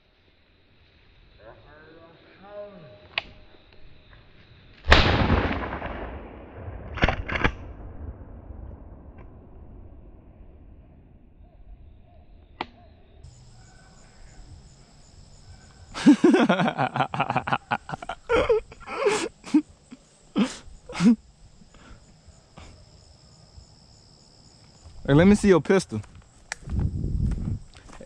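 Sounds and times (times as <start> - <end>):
hounds barking and baying: 11.4 - 19.3
high insect buzz: 13.0 - 28.0.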